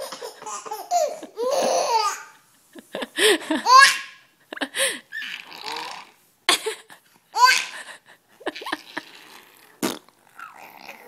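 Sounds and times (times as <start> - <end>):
baby laughing: 0.0 - 2.4, 3.2 - 4.2, 6.5 - 9.4.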